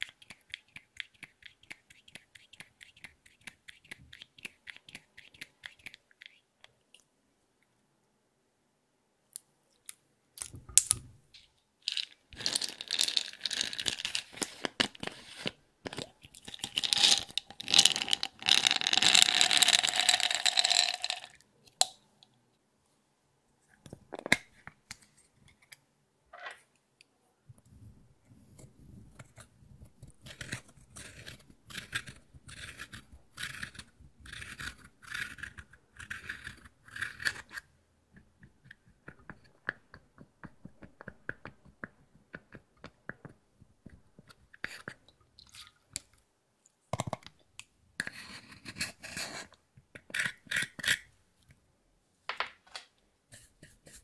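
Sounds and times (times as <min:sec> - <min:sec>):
plastic tool crushing powder: 0:11.9 - 0:21.4, 0:28.6 - 0:44.9
beads pouring onto glass: 0:16.6 - 0:21.4.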